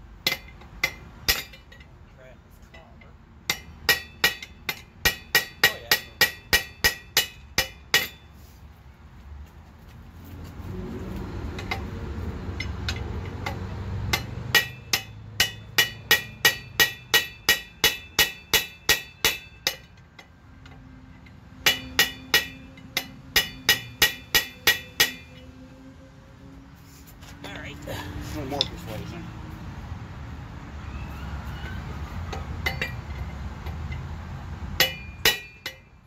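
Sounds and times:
hammer striking steel rod: 0.2s - 1.8s, 3.5s - 8.3s, 12.6s - 20.8s, 21.6s - 25.5s, 32.3s - 34.0s, 34.8s - 36.0s.

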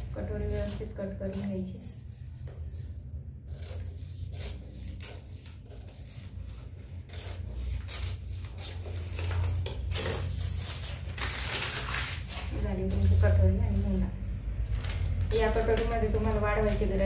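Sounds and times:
scissors snipping newspaper: 0.0s - 2.8s, 3.4s - 14.0s, 14.6s - 17.0s
paper crackling: 3.6s - 17.0s.

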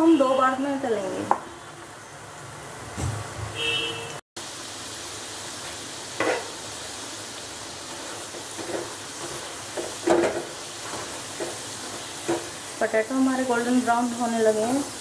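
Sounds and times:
oil sizzling: 4.4s - 15.0s.

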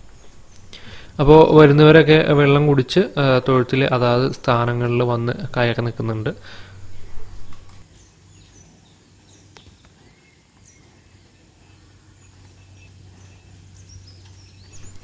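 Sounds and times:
low steady hum: 0.0s - 15.0s
faint bird chirps: 6.6s - 15.0s
cow hooves clicking on dirt: 7.0s - 15.0s.

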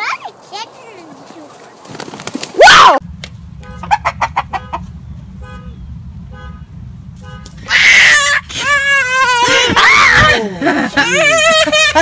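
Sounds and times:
steady low rumble: 3.0s - 11.6s
chicken squawking: 3.8s - 4.8s
chickens clucking: 3.8s - 5.0s.

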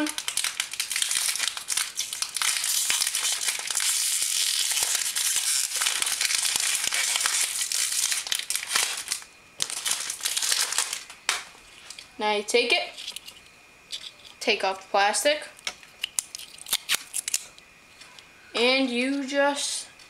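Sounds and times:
plastic packaging crinkling: 0.0s - 12.1s, 12.9s - 14.4s, 16.0s - 17.6s.

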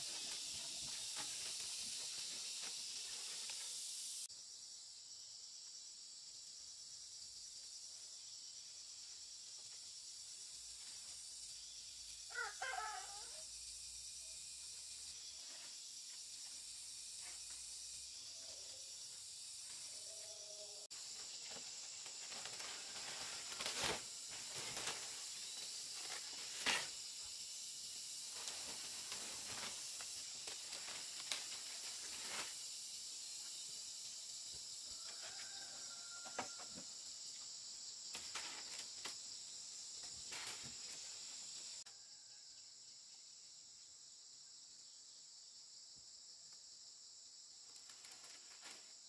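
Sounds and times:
dry palm leaves rustling: 0.0s - 3.8s, 21.0s - 27.0s, 28.2s - 32.7s
high insect drone: 0.0s - 49.0s.

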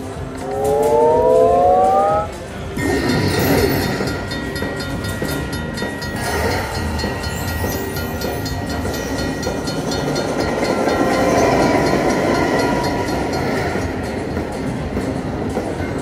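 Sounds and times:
electronic machine tones: 0.4s - 2.4s
train clattering on rails: 2.3s - 16.0s.

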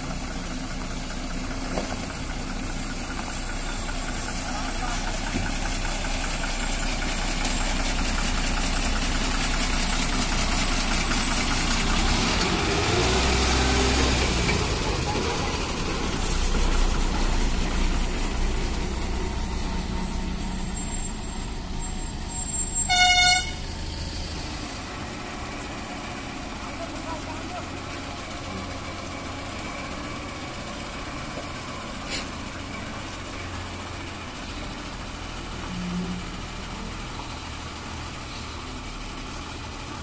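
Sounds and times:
lorry diesel engine running: 0.0s - 40.0s
horn toot: 22.8s - 23.6s.

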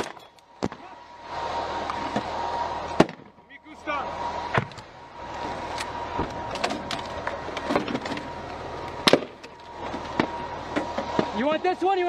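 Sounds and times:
truck engine running: 0.0s - 12.0s
sharp cracks and knocks: 9.0s - 11.3s.

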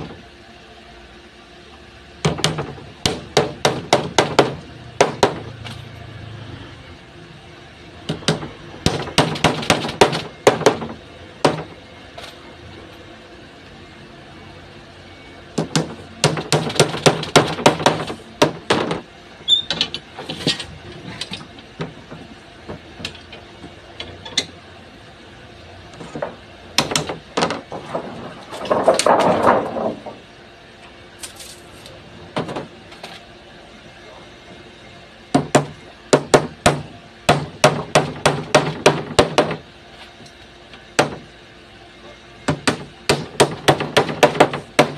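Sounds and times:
hammer striking wood: 2.2s - 5.5s, 8.1s - 11.7s, 15.6s - 19.0s, 26.1s - 27.6s, 35.4s - 39.6s, 41.0s - 41.2s, 42.5s - 44.9s.

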